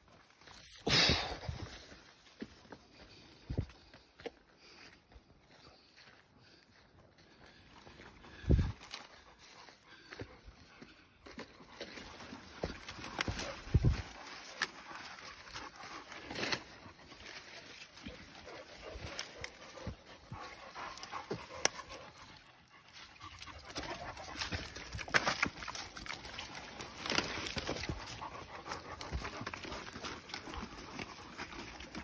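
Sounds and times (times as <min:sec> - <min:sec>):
dogs panting: 0:00.9 - 0:32.0
rustling through undergrowth: 0:07.8 - 0:32.0
brush cracking: 0:11.8 - 0:32.0.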